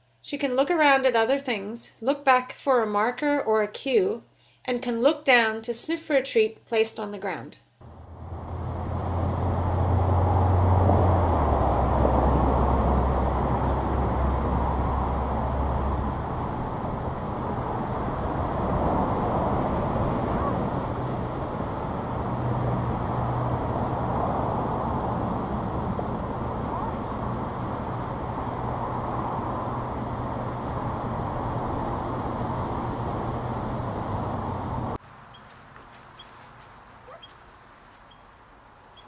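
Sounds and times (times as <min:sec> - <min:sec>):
passing vehicle engine drone: 0:07.8 - 0:35.0
road traffic noise: 0:07.8 - 0:39.0.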